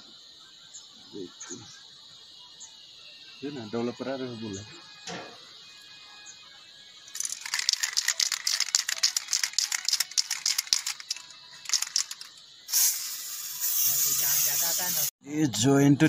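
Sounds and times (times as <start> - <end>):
aerosol can ball rattling: 7.1 - 15.1
aerosol spray hiss: 7.2 - 15.2.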